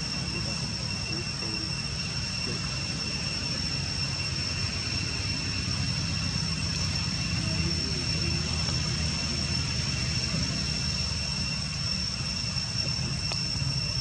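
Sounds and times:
outdoor background rumble: 0.0 - 14.0
thin high whine: 0.0 - 14.0.

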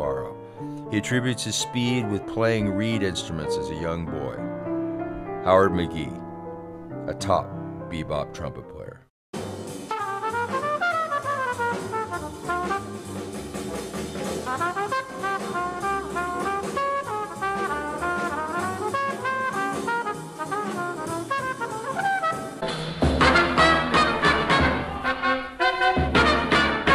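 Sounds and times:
louder different recording: 0.0 - 26.9
jazz trumpet with rhythm section: 9.4 - 26.9.

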